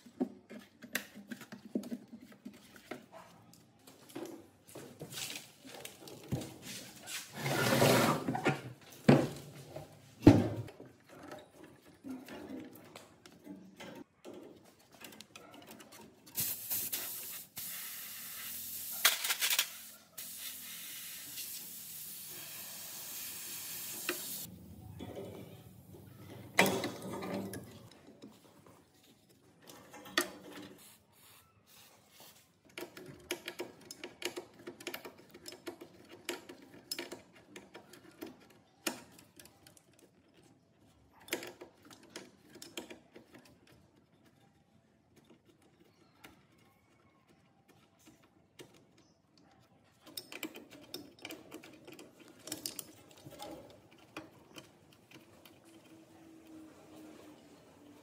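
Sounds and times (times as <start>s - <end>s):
spray hissing: 16.4s - 19.0s, 20.2s - 24.5s.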